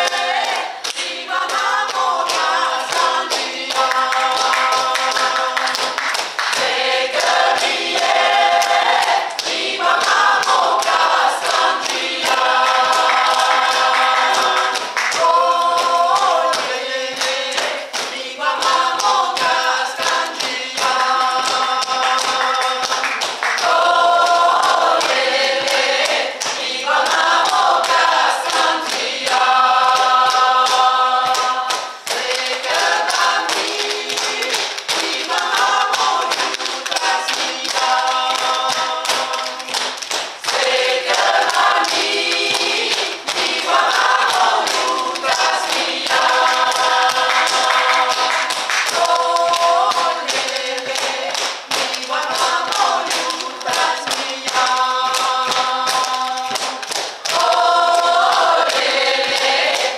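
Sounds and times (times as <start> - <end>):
choir singing a cappella: 0.0 - 59.9
hand claps and chest pats: 0.0 - 59.9.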